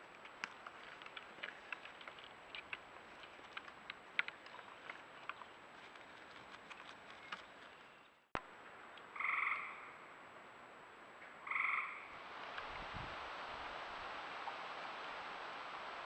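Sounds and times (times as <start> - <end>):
frog calling: 9.1 - 10.0, 11.4 - 12.2.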